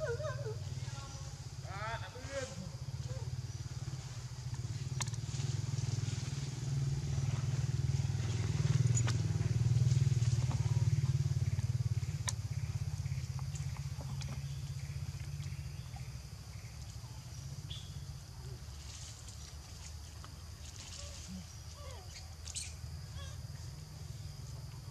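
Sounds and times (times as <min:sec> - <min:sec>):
small engine running: 0:03.7 - 0:15.3.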